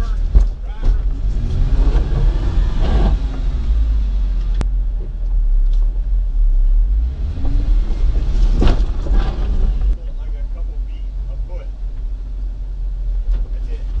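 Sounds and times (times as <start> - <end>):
engine running at low revs: 0.0 - 14.0
brief clatter: 8.3 - 10.0.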